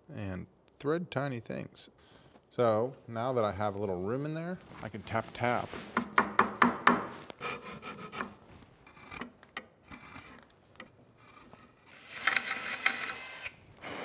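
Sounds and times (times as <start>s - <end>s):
rubbing and scraping against wood: 4.6s - 13.0s.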